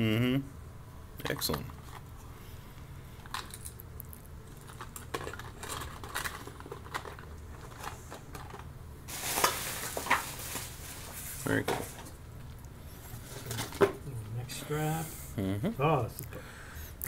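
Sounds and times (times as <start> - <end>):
plastic parts rattling in box: 4.6 - 12.0.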